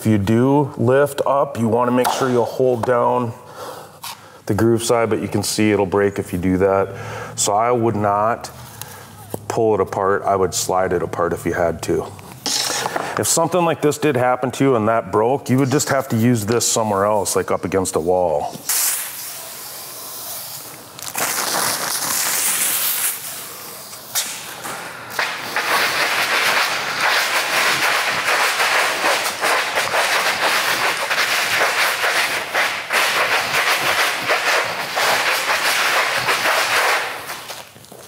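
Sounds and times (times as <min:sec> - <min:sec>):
hard object scraping vinyl plank: 0:25.2 - 0:37.7.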